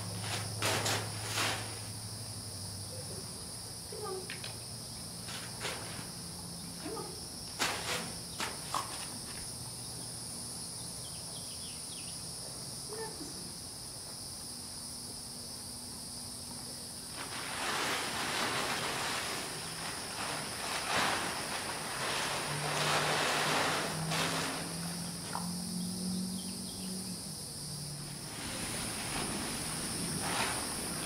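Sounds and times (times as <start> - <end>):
plastic tarp crackling: 0.0 - 2.0, 7.5 - 9.1, 17.0 - 25.8, 28.0 - 31.0
tarp being shaken: 0.0 - 2.0, 5.2 - 6.2, 6.9 - 9.2, 17.0 - 25.5, 28.0 - 31.0
high insect drone: 0.0 - 31.0.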